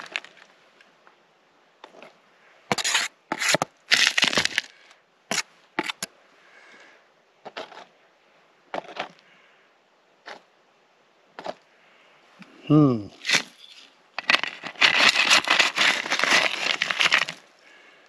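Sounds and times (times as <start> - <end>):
gravel crunching and scraping: 0.0 - 1.0, 1.8 - 6.1, 7.4 - 8.0, 8.7 - 9.3, 11.4 - 11.7, 12.4 - 18.0.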